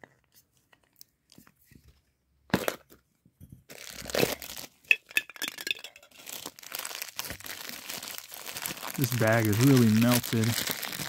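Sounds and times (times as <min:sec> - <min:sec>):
plastic bag crinkling: 0:03.7 - 0:11.0.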